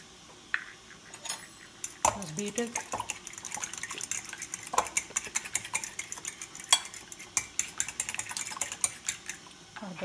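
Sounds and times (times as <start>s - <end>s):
fork clinking against ceramic bowl: 2.8s - 9.4s.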